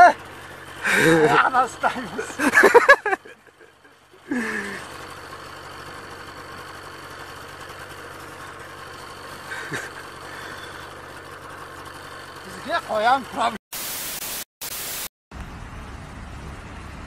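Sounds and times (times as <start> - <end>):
engine idling: 0.0 - 13.6.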